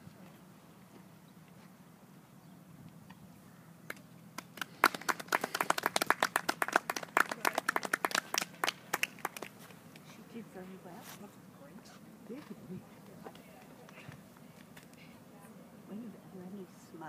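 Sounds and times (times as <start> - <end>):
people clapping: 3.9 - 10.1.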